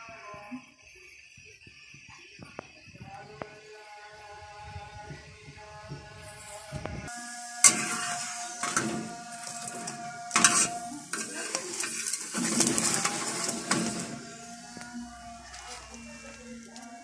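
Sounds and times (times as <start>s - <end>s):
flatbread sizzling on griddle: 5.7s - 17.0s
metal spatula scraping griddle: 7.2s - 16.0s.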